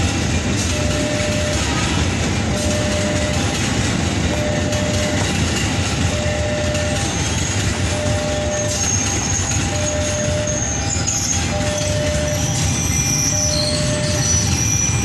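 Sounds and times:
electric train passing: 0:00.0 - 0:15.0
high wheel squeal: 0:08.0 - 0:15.0.

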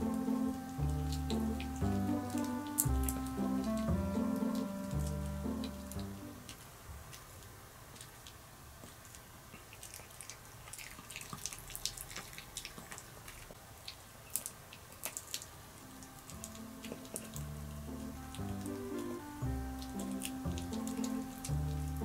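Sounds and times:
background music: 0:00.0 - 0:06.5, 0:15.8 - 0:22.0
dog chewing wet smacks: 0:07.9 - 0:15.5, 0:16.2 - 0:22.0.

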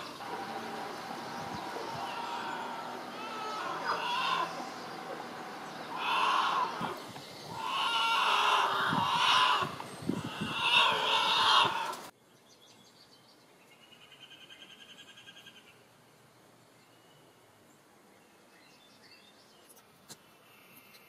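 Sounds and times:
bear cubs crying: 0:00.0 - 0:12.1.

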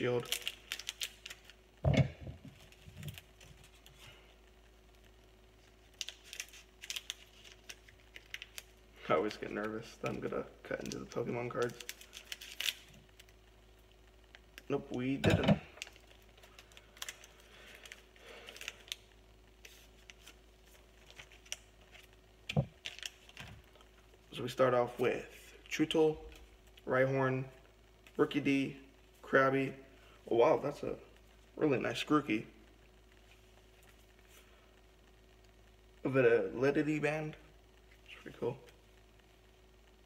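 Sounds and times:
foil pack crinkling and clicking: 0:00.0 - 0:04.2, 0:04.9 - 0:13.4, 0:14.3 - 0:24.0.

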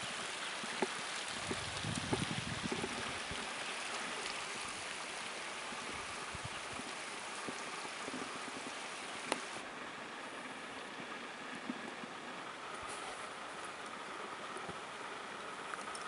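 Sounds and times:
steady rushing hiss: 0:00.0 - 0:16.0.

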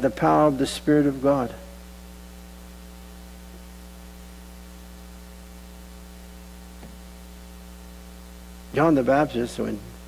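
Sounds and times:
electrical mains hum: 0:00.0 - 0:10.0
light hiss: 0:01.1 - 0:10.0.

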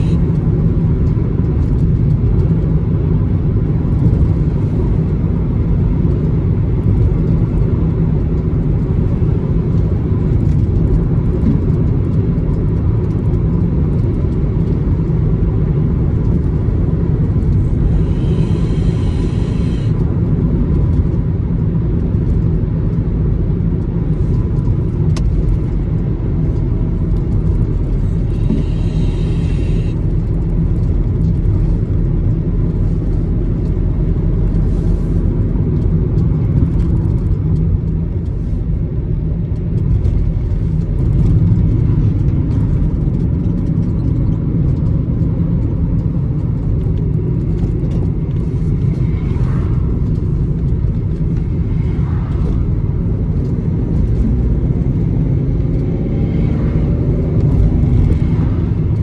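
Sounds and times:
car engine and tyre road noise: 0:00.0 - 0:59.0.

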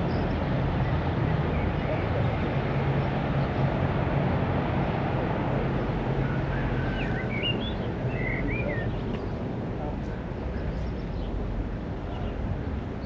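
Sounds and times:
steady rushing noise: 0:00.0 - 0:13.0
bird chirping: 0:06.5 - 0:09.4.

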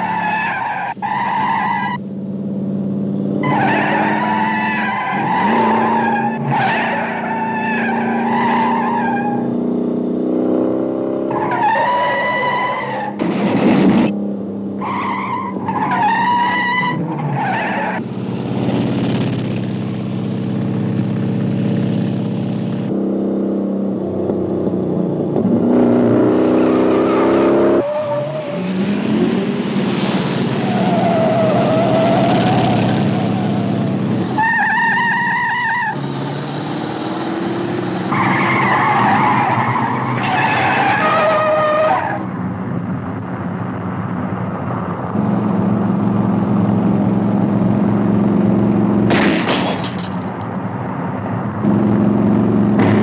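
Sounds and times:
tires squealing: 0:00.0 - 0:02.0, 0:03.4 - 0:09.5, 0:11.2 - 0:14.1, 0:14.8 - 0:18.0, 0:26.3 - 0:42.4
car engines revving: 0:00.0 - 0:53.0.

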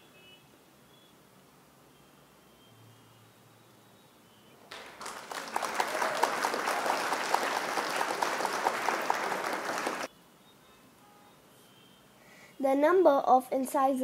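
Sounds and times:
applause: 0:04.7 - 0:10.1.

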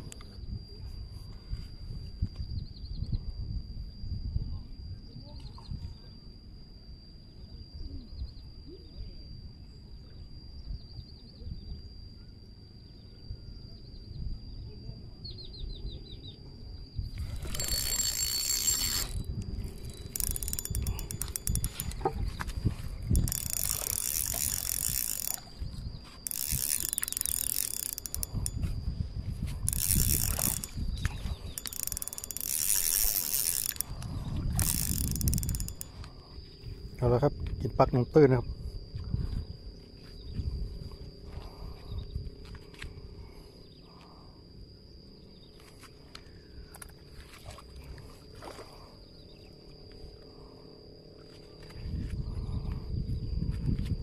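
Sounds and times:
fishing reel whirring and clicking: 0:17.0 - 0:38.2.

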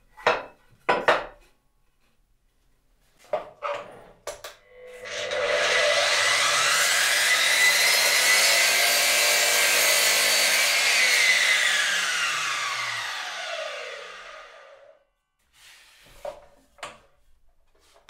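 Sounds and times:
mitre saw cutting wood: 0:04.9 - 0:14.9.

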